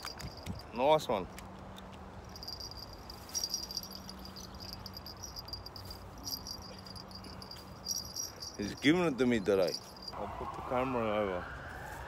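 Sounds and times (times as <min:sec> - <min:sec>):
insects chirping: 0:02.2 - 0:10.2.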